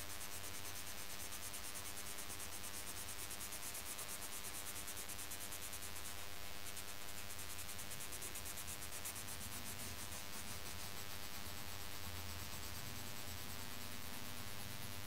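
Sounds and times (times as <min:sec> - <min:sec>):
pencil shading on paper: 0:07.5 - 0:15.0.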